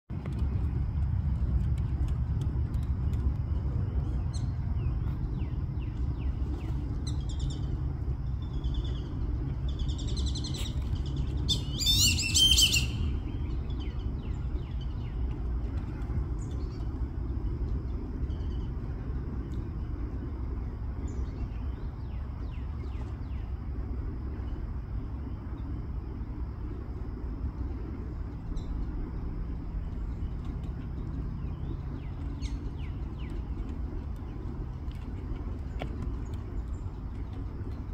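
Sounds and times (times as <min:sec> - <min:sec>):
ducks whistling calls: 0:11.4 - 0:13.3.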